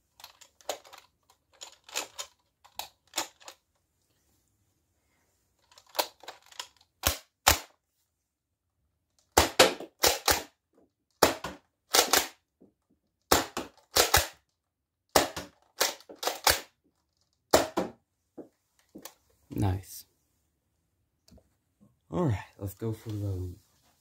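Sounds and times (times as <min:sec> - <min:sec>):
toy pistol plastic clacks: 0:05.7 - 0:07.7, 0:15.2 - 0:16.8.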